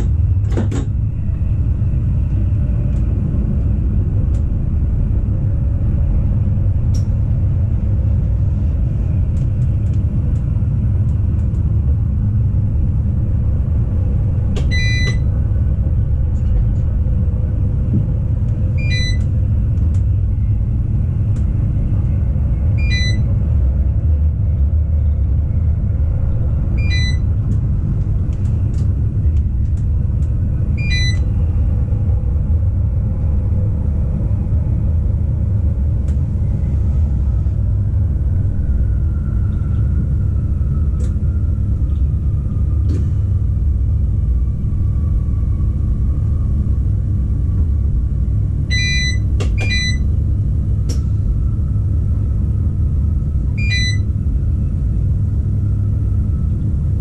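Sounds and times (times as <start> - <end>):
electric train rumbling on track: 0.0 - 57.0
short electronic beep: 14.7 - 15.2, 18.8 - 19.2, 22.8 - 23.2, 26.8 - 27.2, 30.8 - 31.2, 48.7 - 50.0, 53.6 - 54.1.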